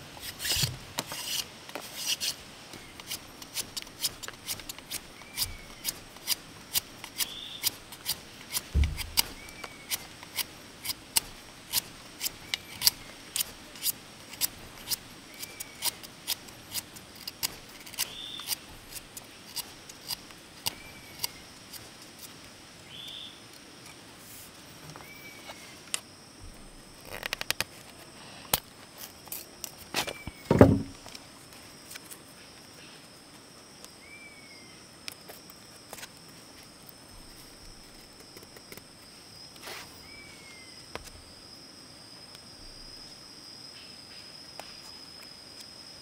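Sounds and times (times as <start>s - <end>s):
sharp clicks and knocks: 8.0s - 10.0s, 30.5s - 31.1s
heavy thump: 8.7s - 9.3s, 30.5s - 31.0s
high insect drone: 24.9s - 46.0s.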